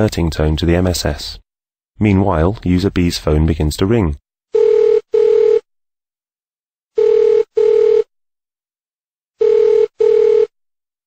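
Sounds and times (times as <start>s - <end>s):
telephone ringing: 4.6s - 5.6s, 7.0s - 8.1s, 9.4s - 10.6s.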